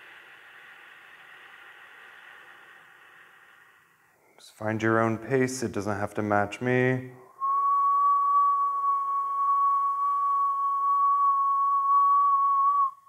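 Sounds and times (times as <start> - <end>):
breathy hiss: 0.0 - 7.4
person whistling: 7.3 - 13.0.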